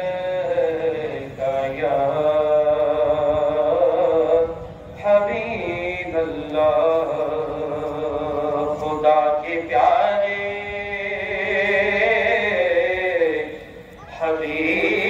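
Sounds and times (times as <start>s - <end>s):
man chanting over loudspeakers: 0.0s - 15.0s.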